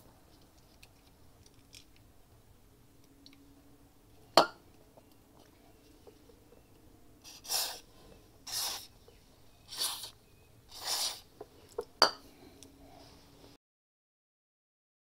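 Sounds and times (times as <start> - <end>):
aerosol spray hissing bursts: 7.3 - 7.8, 8.5 - 8.9, 9.7 - 10.1, 10.7 - 11.2.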